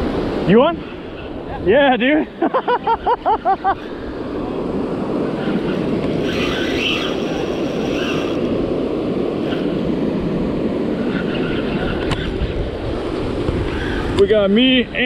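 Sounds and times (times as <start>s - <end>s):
wind noise on microphone: 3.6s - 15.0s
fishing reel being cranked: 6.1s - 8.4s.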